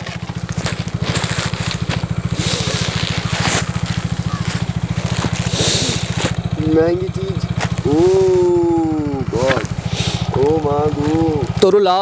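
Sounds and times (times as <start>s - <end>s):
plastic bag crinkling: 0.0s - 6.6s
low pulsing hum: 0.0s - 12.0s.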